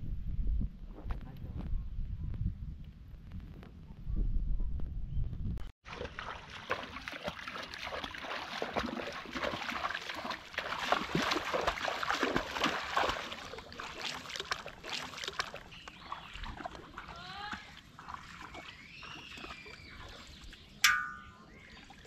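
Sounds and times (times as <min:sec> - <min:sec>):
wading through shallow water: 0:05.8 - 0:22.0.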